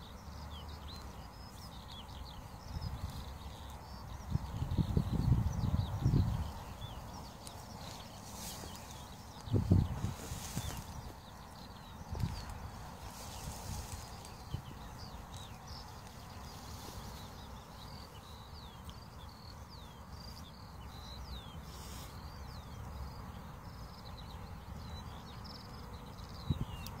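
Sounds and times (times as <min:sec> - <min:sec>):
small birds chirping: 0:00.0 - 0:27.0
wind rumble on microphone: 0:01.7 - 0:17.2, 0:26.2 - 0:27.0.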